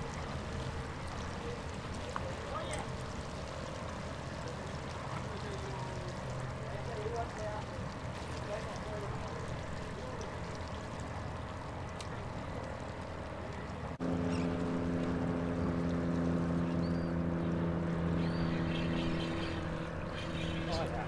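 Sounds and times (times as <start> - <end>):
open-air noise: 0.0 - 21.0
engine drone: 10.3 - 21.0
high bird calls: 14.2 - 14.6, 16.6 - 21.0.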